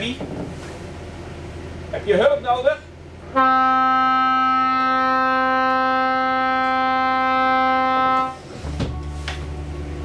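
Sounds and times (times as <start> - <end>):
boat engine hum: 0.0 - 10.0
boat horn long blast: 3.3 - 8.6.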